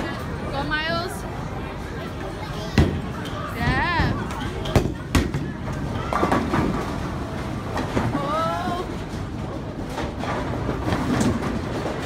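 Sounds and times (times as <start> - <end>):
bowling balls rolling: 2.7 - 12.0
bowling pins clattering: 2.8 - 12.0.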